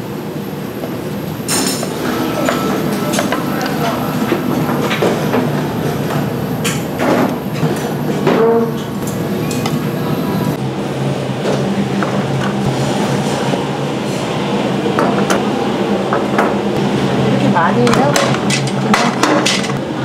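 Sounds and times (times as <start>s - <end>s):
low rumble and hum: 0.0s - 17.8s
utensils and dishes clattering: 1.5s - 9.8s, 17.8s - 19.8s.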